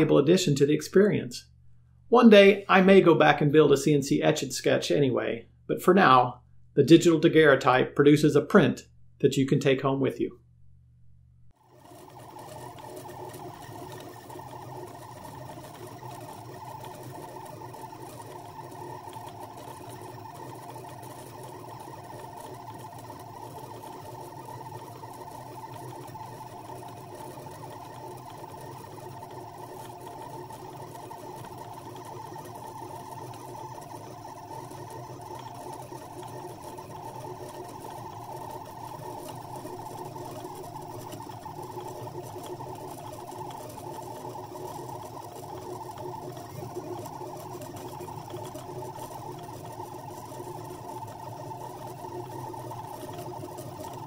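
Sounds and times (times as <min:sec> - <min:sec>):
stepper motors whirring: 0:11.5 - 0:54.0.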